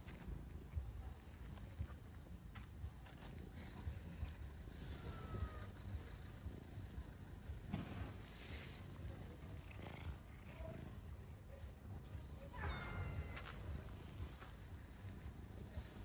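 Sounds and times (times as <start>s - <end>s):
cats purring: 3.4s - 7.6s, 8.2s - 12.3s.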